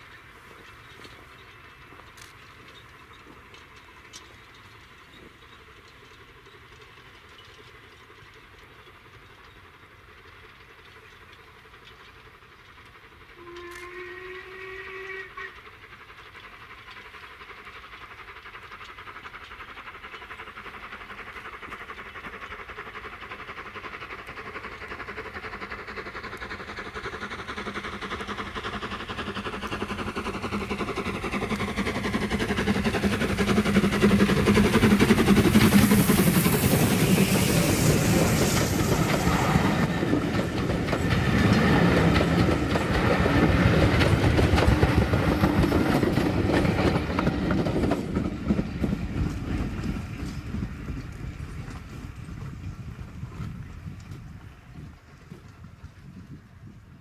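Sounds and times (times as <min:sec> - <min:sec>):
steam locomotive exhaust and running: 0:00.0 - 0:57.0
steam locomotive whistle: 0:13.4 - 0:15.6.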